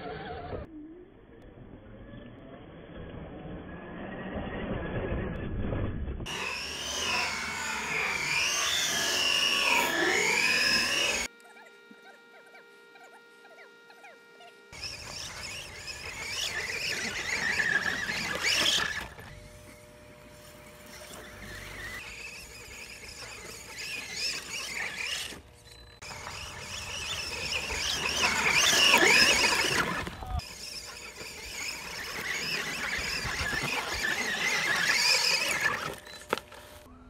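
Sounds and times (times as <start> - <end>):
electric motor whining: 0.0 - 0.7, 6.2 - 37.0
tyres scrabbling in sand: 14.8 - 25.4, 26.0 - 36.9.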